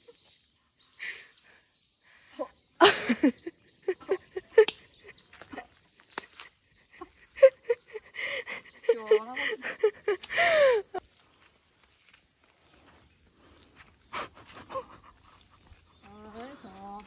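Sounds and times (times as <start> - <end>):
insect chirring: 0.0 - 17.0.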